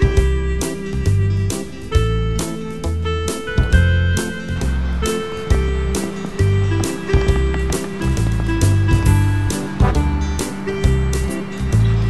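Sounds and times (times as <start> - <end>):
plucked guitar music with bass: 0.0 - 12.0
sharp beats: 3.4 - 11.5.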